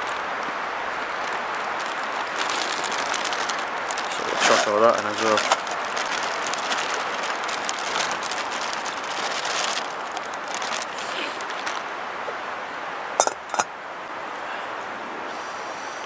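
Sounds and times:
plastic bag crinkling: 0.0 - 11.9, 13.2 - 13.6
frozen vegetables pattering into bowl: 1.0 - 11.8
pot lid clinking: 13.2 - 13.7.

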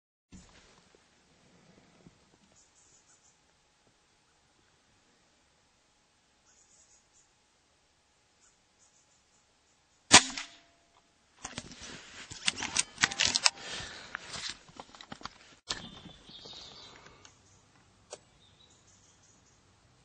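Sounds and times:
air rifle shot crack: 10.1 - 10.7
rifle handling clicks and rustling: 11.4 - 15.9.

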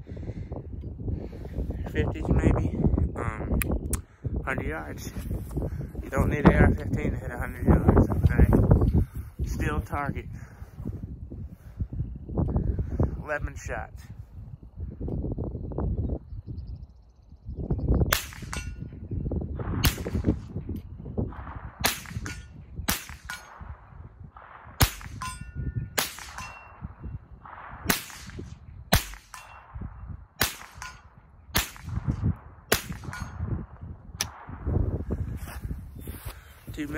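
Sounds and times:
rifle shots: 18.1 - 18.8, 19.6 - 20.6, 21.3 - 29.8, 30.4 - 33.5
bullet ringing on steel target: 18.3 - 19.0, 24.9 - 26.9, 29.0 - 29.8.

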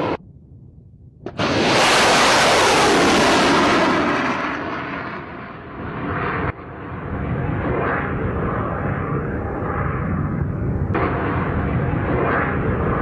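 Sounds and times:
missile launch blast: 1.3 - 6.5
rocket motor roar: 1.3 - 6.6.

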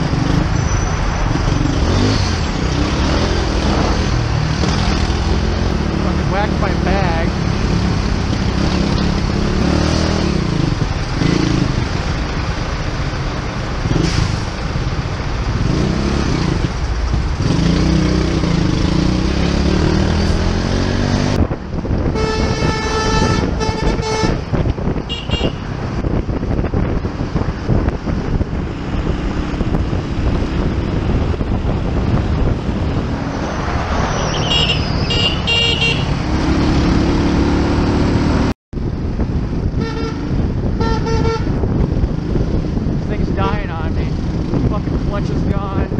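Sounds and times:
motorbike engine and road noise: 0.0 - 45.9
vehicle horn beeping: 22.2 - 24.5, 25.1 - 25.7, 34.3 - 36.1, 39.8 - 41.6
higher horn beeps: 34.3 - 36.2.

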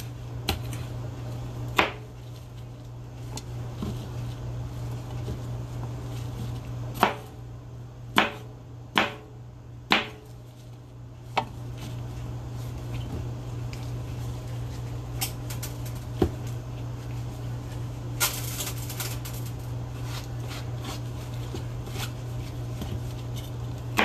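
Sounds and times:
steady low hum: 0.0 - 24.0
knife chopping on plastic board: 1.7 - 2.1, 6.9 - 7.4, 8.1 - 9.3, 9.9 - 10.3.

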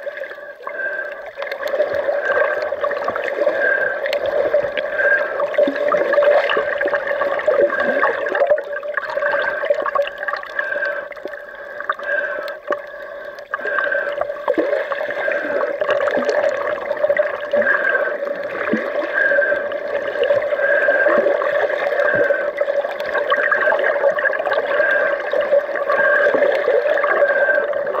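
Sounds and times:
muffled underwater gurgling: 0.0 - 28.0
faint clicks: 1.0 - 3.2, 10.8 - 14.6.

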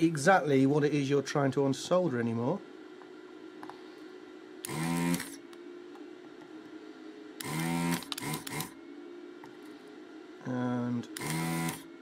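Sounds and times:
vacuum pump motor buzz: 3.5 - 12.0.

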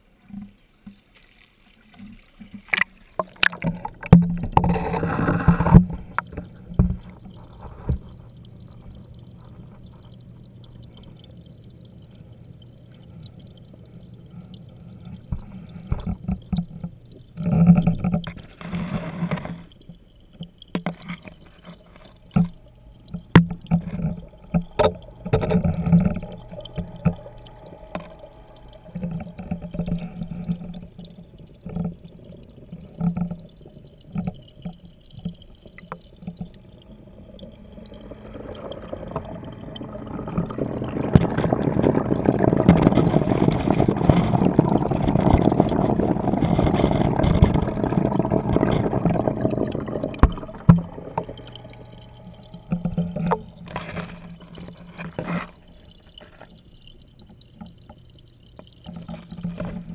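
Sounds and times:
low underwater hum: 0.0 - 59.9
underwater knocks and clicks: 1.9 - 59.9
churning rush of water: 32.8 - 56.4.

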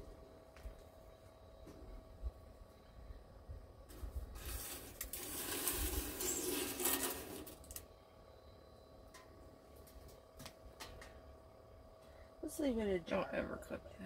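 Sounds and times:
foil crinkling and scraping on metal: 3.9 - 7.9.

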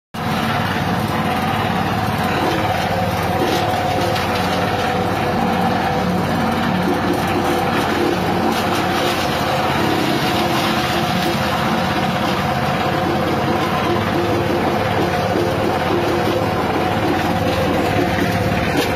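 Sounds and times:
grinding machine engine running: 0.2 - 18.9
crackles of chopping: 13.2 - 18.9.

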